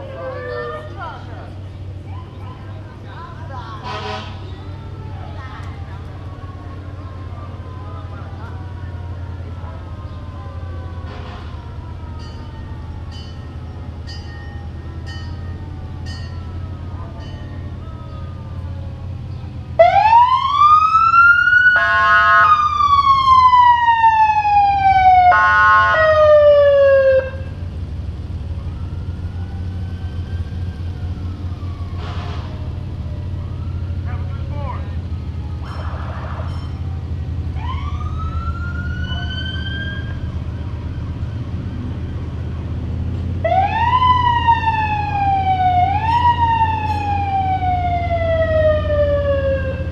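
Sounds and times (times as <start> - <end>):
siren wailing: 0.0 - 1.2, 19.8 - 27.6, 28.4 - 36.6, 37.4 - 42.5, 43.4 - 49.9
vehicle engines rumbling: 0.0 - 49.9
horn blasts: 3.8 - 4.5
siren chirps: 17.6 - 27.6, 28.4 - 36.8, 37.5 - 42.5, 43.4 - 49.9.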